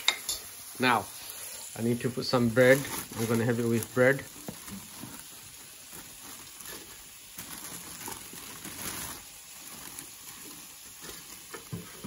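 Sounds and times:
olives sizzling in oil: 0.0 - 12.0.

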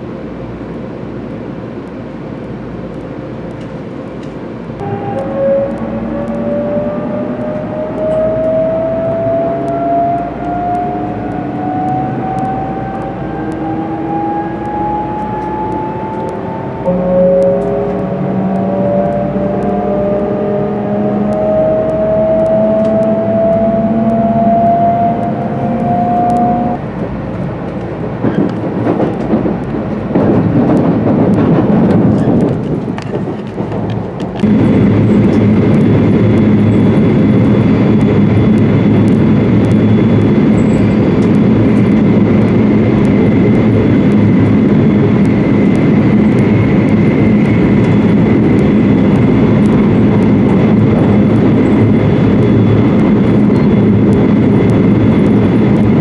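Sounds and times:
train cabin drone: 0.0 - 56.0
train running noise: 0.0 - 56.0
train traction motor whine: 0.0 - 56.0
faint high tone: 4.8 - 7.6.

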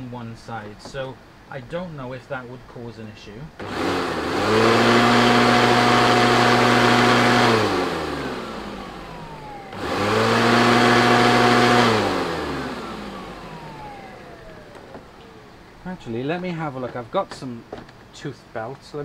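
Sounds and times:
vacuum cleaner running: 3.6 - 15.7
vacuum cleaner winding down whine: 3.6 - 16.1.

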